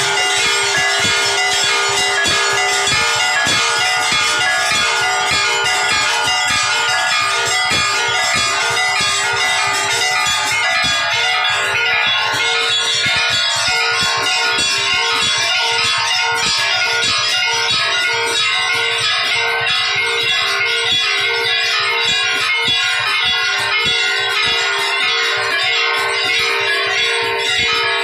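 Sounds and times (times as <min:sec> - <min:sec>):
temple bells clanging rapidly: 0:00.0 - 0:28.0.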